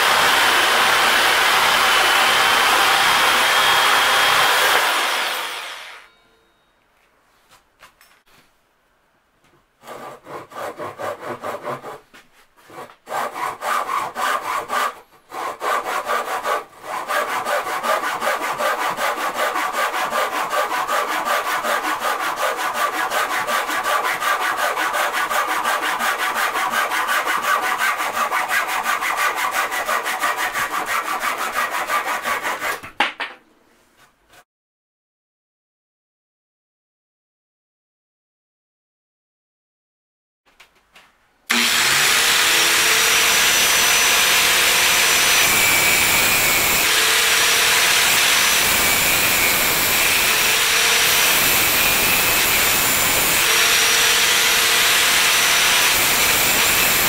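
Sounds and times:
hand saw cutting wood: 0:00.0 - 0:06.1, 0:09.8 - 0:12.0, 0:12.6 - 0:32.9, 0:41.5 - 0:57.0.

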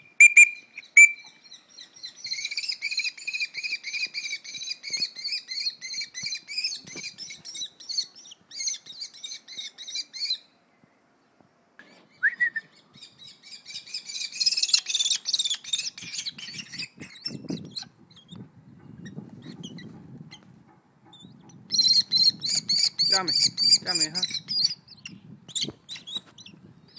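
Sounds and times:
kestrel shrill calls: 0:21.2 - 0:26.5.

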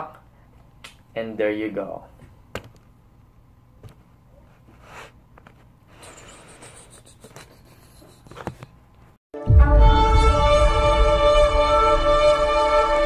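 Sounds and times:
book rustling and tapping: 0:04.7 - 0:05.7, 0:08.2 - 0:08.8.

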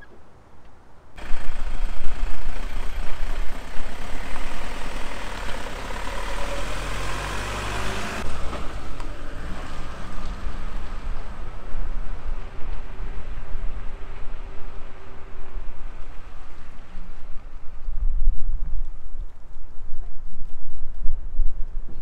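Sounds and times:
motorhome engine rumbling: 0:01.1 - 0:17.8.

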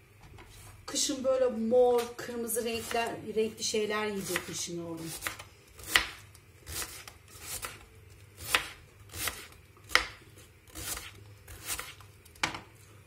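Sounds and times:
knife slicing cabbage: 0:02.0 - 0:03.2, 0:04.1 - 0:07.8, 0:08.4 - 0:12.1.

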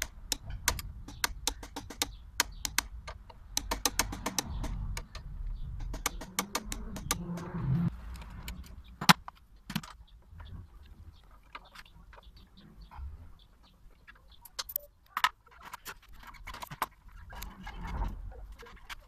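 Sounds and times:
small metallic clicks and clinks: 0:14.0 - 0:17.7.

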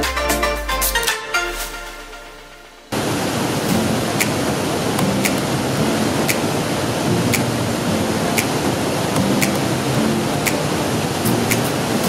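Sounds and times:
white water rushing over rock: 0:03.0 - 0:12.0
faint ticking: 0:05.0 - 0:06.6.

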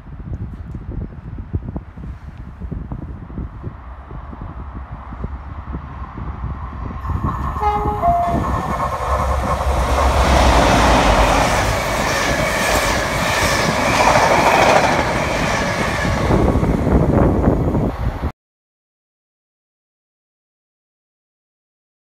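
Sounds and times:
train passing close by: 0:02.9 - 0:18.3
two-tone train horn: 0:07.5 - 0:09.4.

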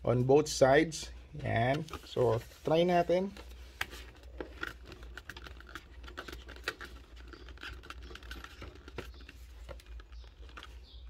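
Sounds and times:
light plastic scraping: 0:01.7 - 0:11.0
plastic clicks: 0:03.8 - 0:10.9.

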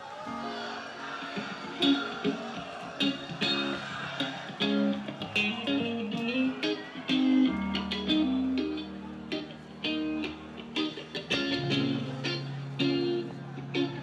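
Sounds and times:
electric guitar: 0:00.3 - 0:14.0
bass guitar: 0:04.6 - 0:14.0.

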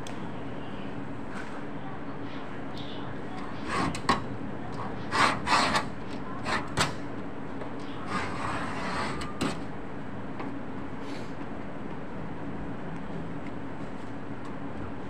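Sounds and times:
knife scraping sheet material: 0:03.6 - 0:04.1, 0:05.0 - 0:06.8, 0:08.0 - 0:09.6.

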